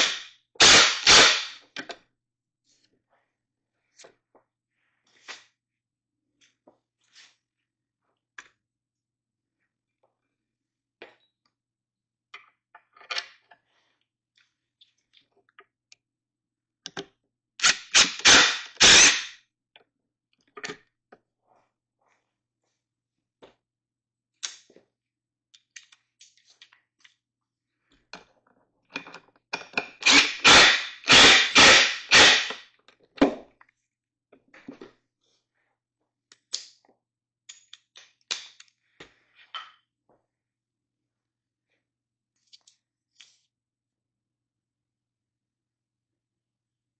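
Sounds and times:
impact driver hammering bolts: 30.0 - 32.6.

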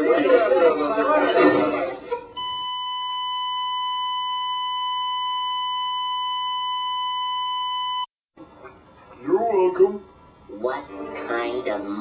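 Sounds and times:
steady electronic bleep: 2.4 - 8.1.

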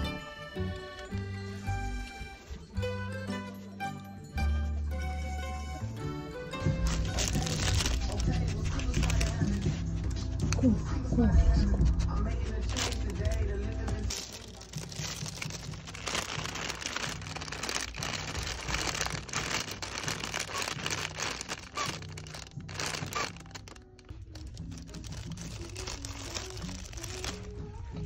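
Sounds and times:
quiet background music: 0.0 - 28.0
plastic bags crinkling: 6.7 - 9.7, 12.7 - 27.6.

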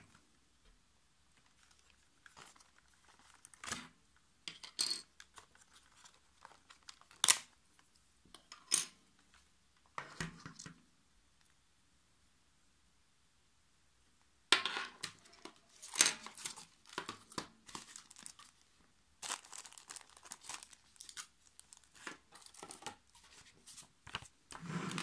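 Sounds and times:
packaging rustling: 1.4 - 3.7, 5.3 - 7.5, 15.2 - 24.3.

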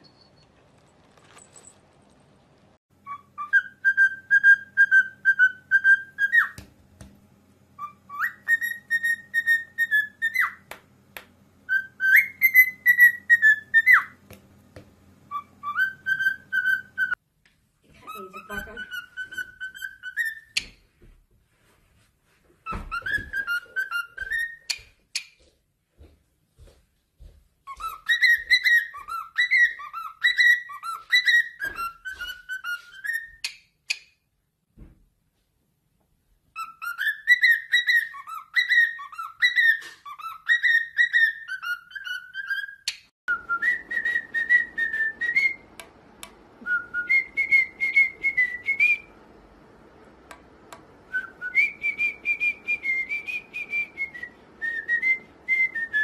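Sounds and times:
background hiss: 0.0 - 2.8
cockatiel whistling: 3.0 - 6.6, 7.8 - 10.7, 11.7 - 14.2, 15.3 - 17.2, 18.0 - 20.8, 22.6 - 25.3, 27.7 - 34.0, 36.6 - 45.7, 46.6 - 49.1, 51.1 - 56.0.

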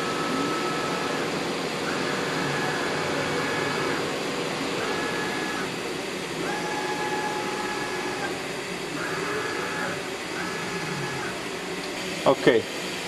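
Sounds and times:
machine axis drives whining: 0.0 - 12.2
hum of running machinery: 0.0 - 13.0.

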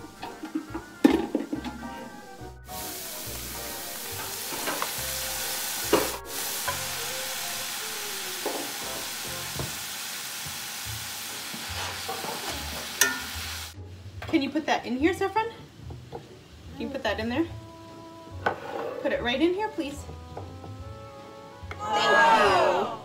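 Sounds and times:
vegetables sizzling in a skillet: 2.6 - 13.8
metal spatula stirring: 11.8 - 13.3.

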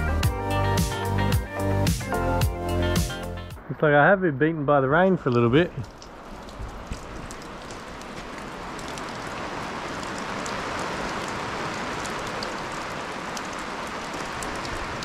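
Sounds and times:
rain falling: 2.0 - 15.0
raindrops ticking close by: 3.6 - 15.0.

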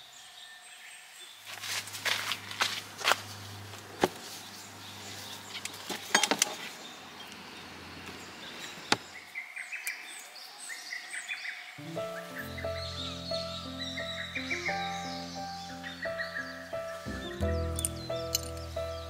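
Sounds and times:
outdoor ambience: 0.0 - 19.0
music: 11.8 - 19.0.

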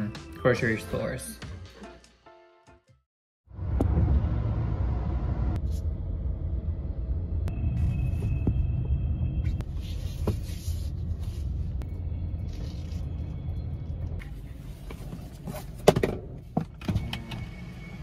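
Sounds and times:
car engine rumble: 3.5 - 17.8
road noise: 3.5 - 18.0.

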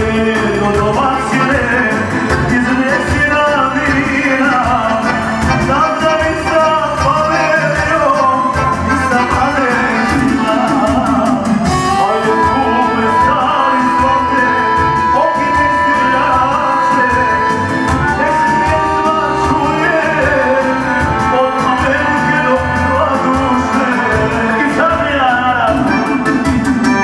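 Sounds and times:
accordion: 0.0 - 27.0
electronic keyboard: 0.0 - 27.0
man singing into microphone: 0.0 - 27.0
steady beat: 0.0 - 27.0.

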